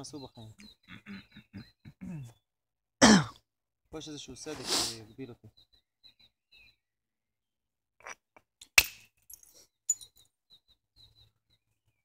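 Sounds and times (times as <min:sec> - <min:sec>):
stone striking flint: 0:08.6 - 0:10.1.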